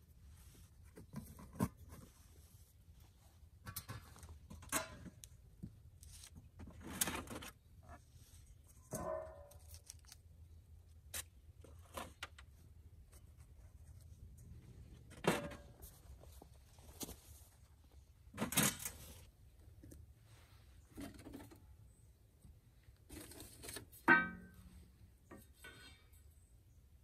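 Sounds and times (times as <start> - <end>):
metal lids clinking and scraping: 3.6 - 5.2, 18.4 - 19.0, 23.1 - 26.2
ringing metal clank: 24.1 - 24.8.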